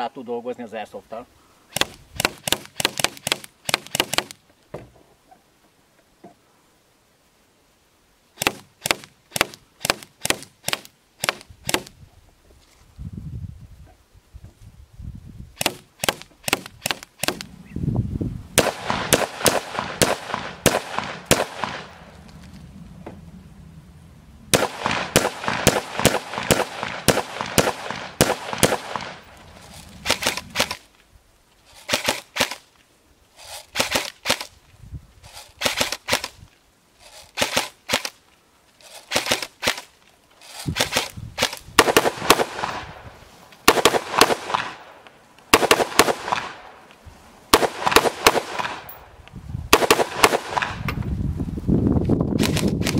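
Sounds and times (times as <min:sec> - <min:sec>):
rifle shots: 0:01.7 - 0:04.4, 0:08.4 - 0:11.9, 0:15.6 - 0:17.5, 0:18.6 - 0:22.1, 0:24.5 - 0:30.8, 0:31.8 - 0:32.7, 0:33.7 - 0:34.5, 0:35.6 - 0:36.4, 0:37.3 - 0:38.2, 0:39.0 - 0:39.9, 0:40.6 - 0:43.0, 0:43.6 - 0:46.8, 0:47.5 - 0:49.1, 0:49.7 - 0:50.8.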